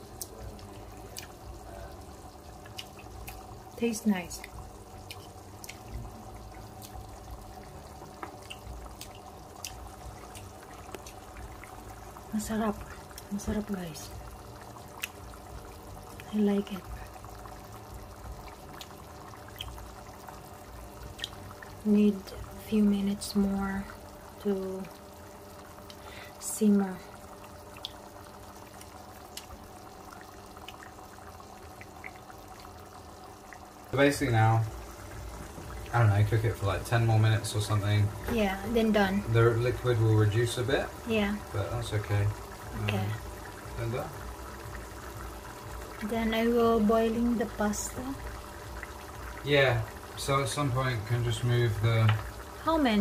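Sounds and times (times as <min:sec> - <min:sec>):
sauce bubbling in a pan: 0:00.0 - 0:53.0
steady low hum: 0:00.0 - 0:53.0.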